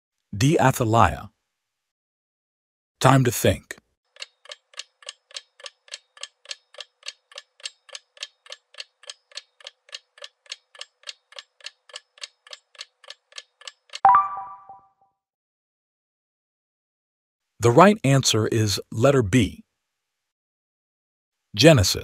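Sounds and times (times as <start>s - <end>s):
countdown timer ticking: 14.0s - 14.8s
short ringing ding: 14.1s - 14.8s.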